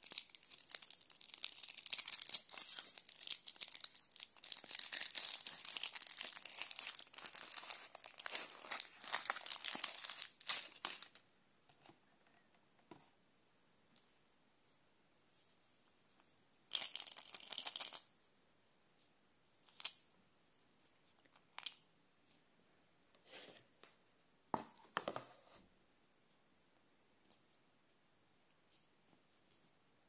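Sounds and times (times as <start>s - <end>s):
foil wrapper crinkling and tearing: 0.0s - 11.1s.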